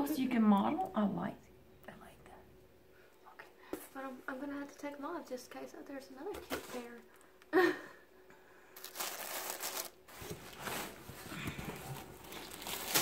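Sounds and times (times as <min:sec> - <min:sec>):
cardboard and paper rustling: 0:06.3 - 0:07.2, 0:08.8 - 0:13.0.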